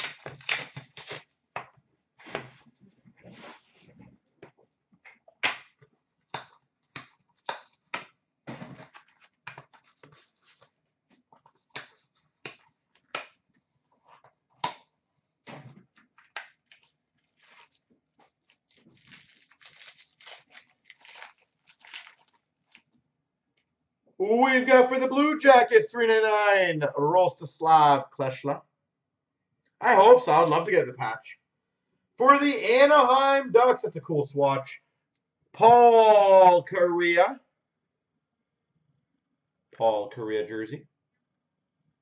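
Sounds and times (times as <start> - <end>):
wrappers crinkling and tearing: 0.0 - 1.3, 16.2 - 23.0.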